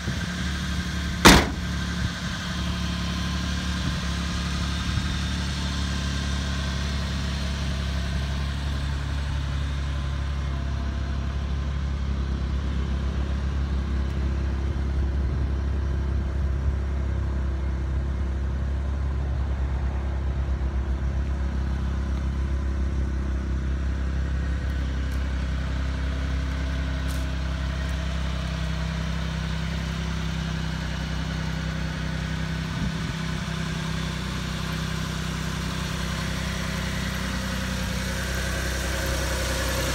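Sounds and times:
small truck engine idling: 0.0s - 39.9s.

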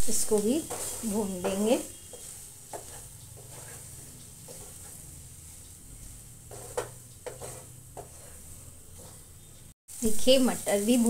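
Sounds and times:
soft sizzle of frying: 0.0s - 11.0s
spatula scraping a pan: 0.1s - 9.6s.

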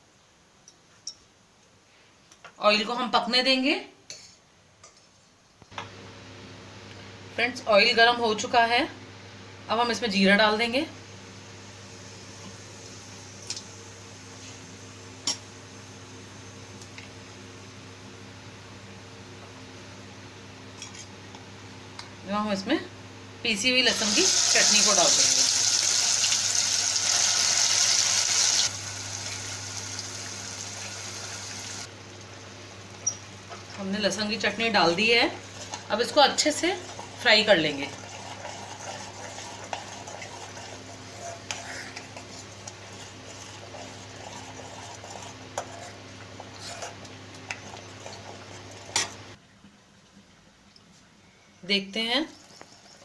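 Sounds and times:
paste sizzling in hot oil: 23.9s - 31.9s, 35.3s - 46.0s
spoon scraping paste in pan: 38.0s - 47.7s.

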